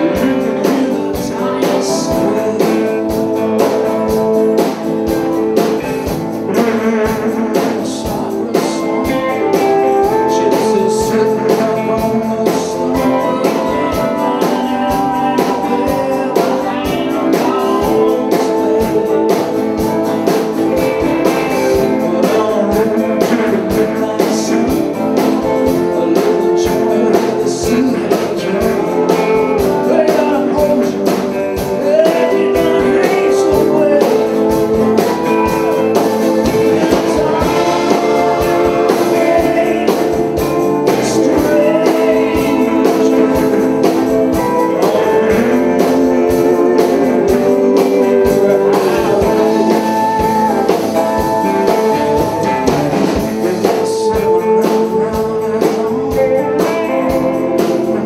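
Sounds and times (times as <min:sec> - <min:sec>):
bass guitar: 0:00.0 - 0:58.0
drums: 0:00.0 - 0:58.0
electric guitar: 0:00.0 - 0:58.0
pedal steel guitar: 0:00.0 - 0:58.0.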